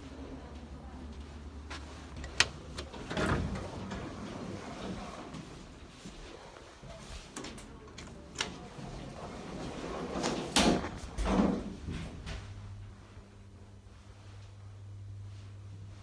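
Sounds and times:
sliding doors shutting with clatter: 2.2s - 5.2s, 8.2s - 11.9s.

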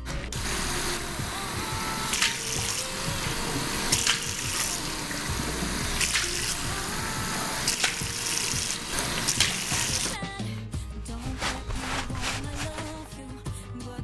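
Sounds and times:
tap running into sink: 1.8s - 10.2s
water splashing: 5.8s - 10.2s.

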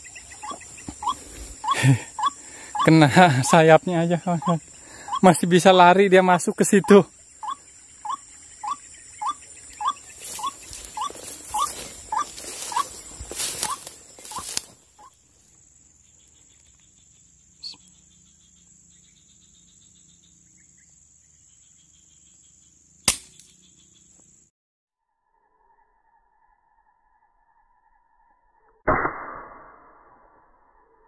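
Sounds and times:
rustling in grass: 9.7s - 15.1s.

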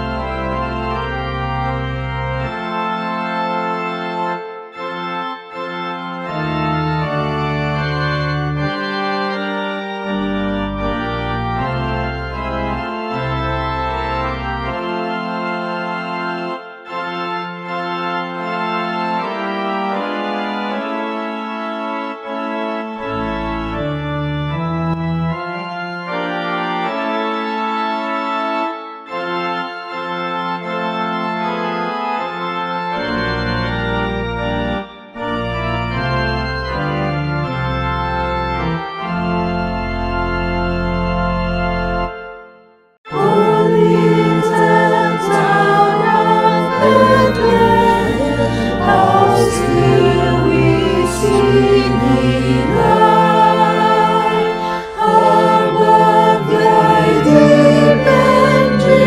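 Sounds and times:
organ playing held chords: 0.0s - 59.0s
choir singing: 43.1s - 59.0s.

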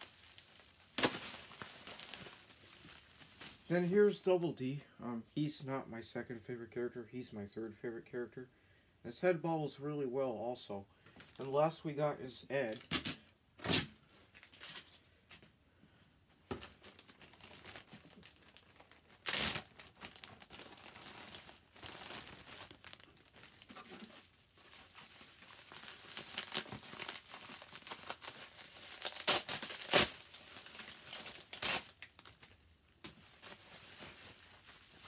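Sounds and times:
sharp plastic crackles: 0.0s - 3.9s, 12.7s - 15.5s, 16.4s - 35.0s
plastic packaging crinkling: 0.0s - 4.4s, 12.7s - 15.0s, 16.5s - 35.0s.

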